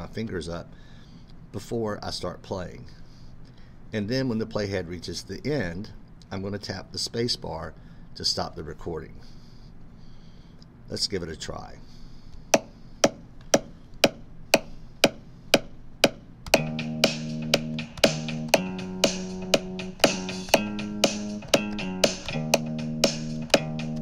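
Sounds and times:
metronome clicking: 12.6s - 24.0s
bass guitar playing bass line: 16.5s - 24.0s.

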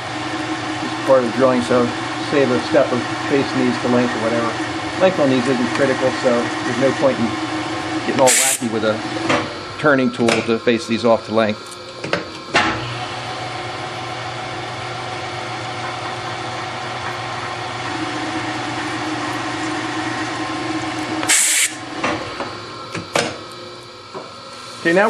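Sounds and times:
lathe spindle running: 0.0s - 25.0s
short loud hiss: 21.3s - 21.8s.

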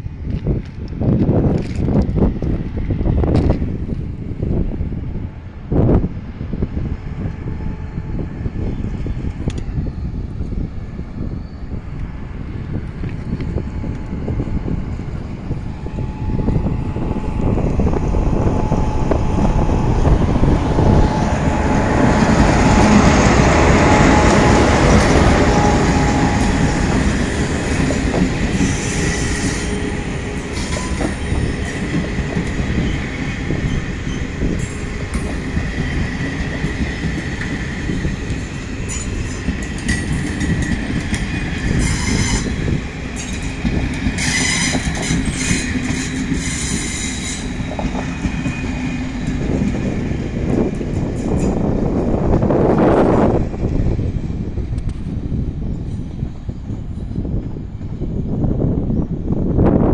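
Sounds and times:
train rumbling past: 0.0s - 59.9s
train wheel clatter: 0.3s - 2.7s, 20.0s - 53.8s.

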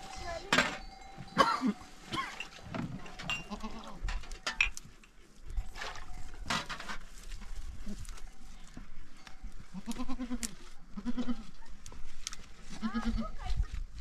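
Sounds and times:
livestock bleating: 3.4s - 4.0s, 9.7s - 11.6s.

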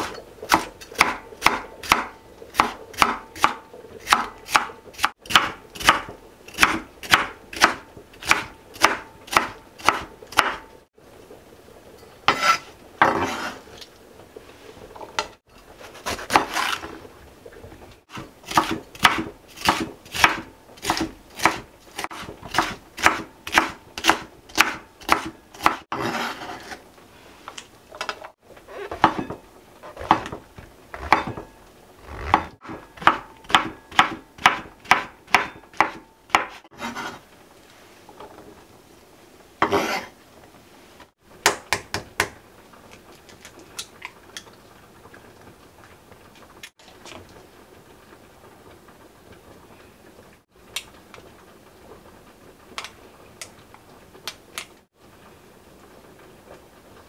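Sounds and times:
knife chopping on wooden board: 0.5s - 10.6s, 18.1s - 26.4s, 30.0s - 30.4s, 31.0s - 31.4s, 32.2s - 37.2s.

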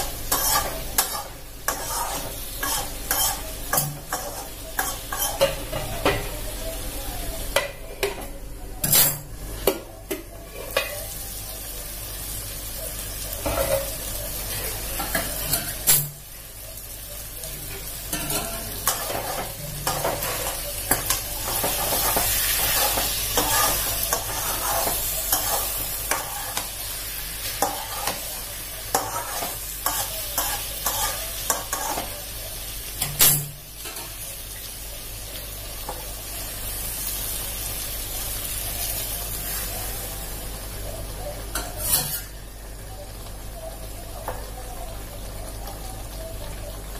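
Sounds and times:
spatula scraping and knocking pan: 0.0s - 6.2s, 18.1s - 26.8s, 28.9s - 32.1s
food sizzling in a wok: 0.0s - 46.9s.

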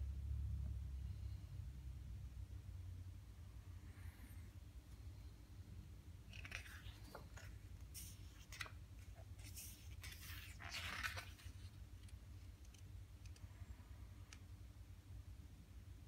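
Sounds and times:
book pages turning: 6.3s - 12.9s.

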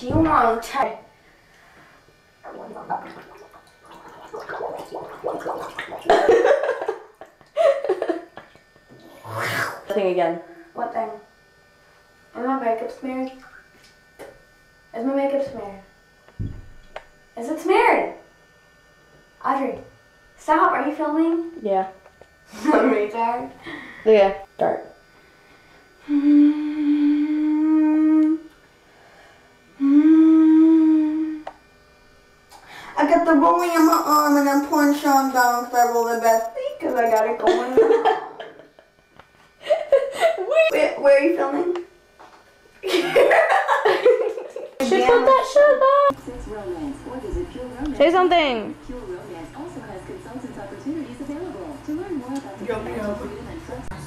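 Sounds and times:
girl mumbling: 26.0s - 28.5s, 29.8s - 31.4s
person humming: 26.0s - 28.6s, 29.8s - 31.6s.

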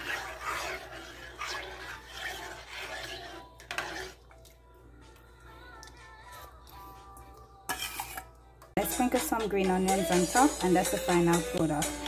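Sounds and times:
liquid swishing in pot: 0.0s - 4.4s, 7.7s - 8.3s
metal spoon scraping pot: 0.0s - 4.4s, 7.7s - 8.4s.

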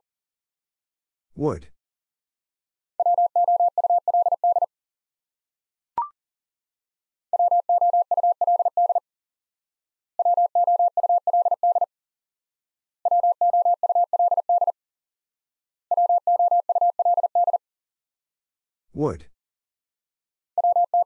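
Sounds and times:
morse code beeps: 3.0s - 4.7s, 7.4s - 9.0s, 10.2s - 11.9s, 13.1s - 14.7s, 15.9s - 17.6s, 20.6s - 21.0s.

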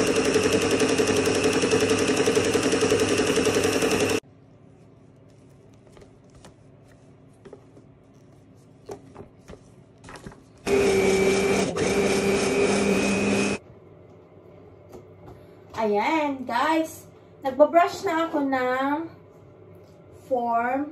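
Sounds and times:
electric mixer running: 0.0s - 4.2s, 10.7s - 13.6s.

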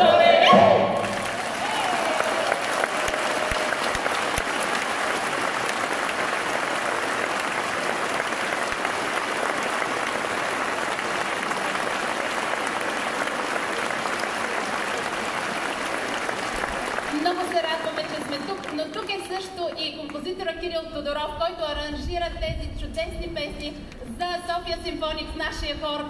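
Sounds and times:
audience applauding: 0.0s - 20.5s.

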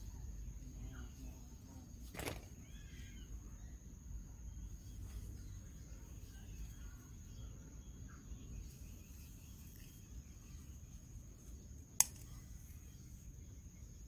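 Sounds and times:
high insect trill: 0.0s - 14.0s.

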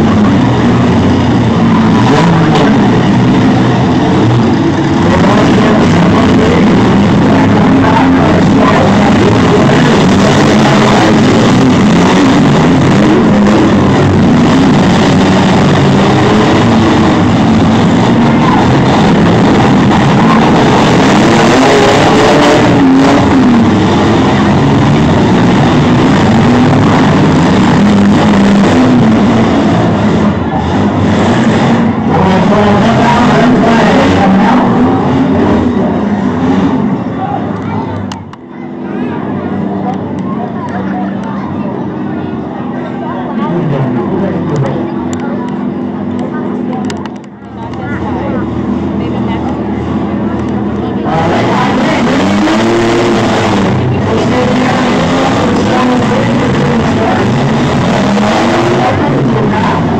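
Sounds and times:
car engines revving: 0.0s - 59.9s.

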